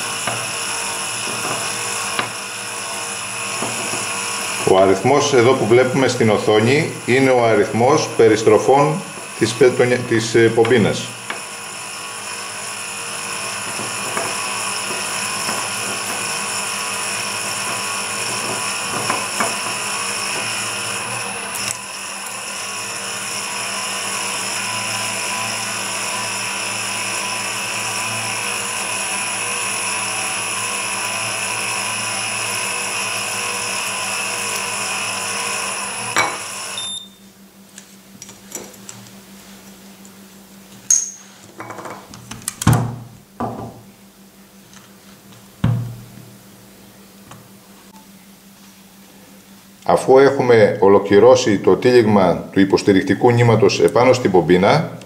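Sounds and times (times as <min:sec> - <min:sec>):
electric fishing reel motor: 0:00.0 - 0:36.8.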